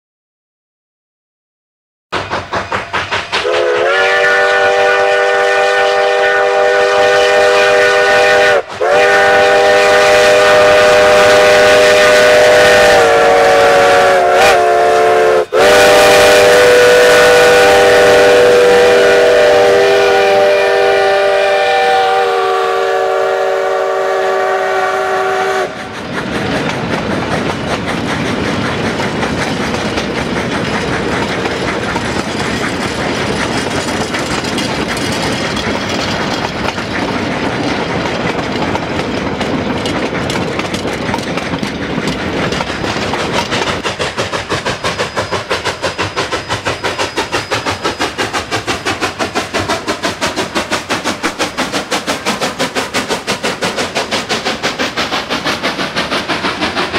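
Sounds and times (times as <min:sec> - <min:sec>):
train wheels clattering on rails: 0:02.1 - 0:56.9
steam whistle blowing: 0:03.4 - 0:25.9.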